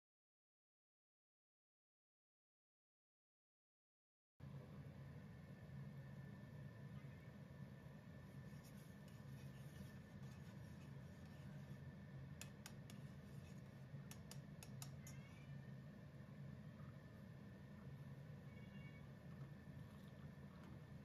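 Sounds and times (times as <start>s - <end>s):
low steady hum: 4.4s - 21.0s.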